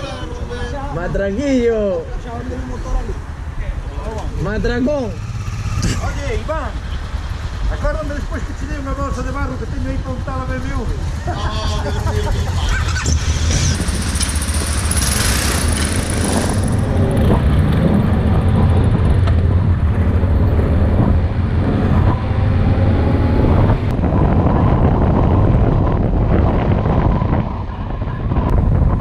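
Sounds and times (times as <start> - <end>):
motorcycle engine running: 12.0 - 22.4.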